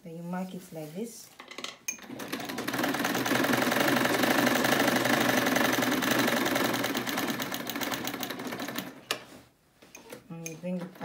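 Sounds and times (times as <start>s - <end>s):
sewing machine stitching: 2.0s - 9.1s.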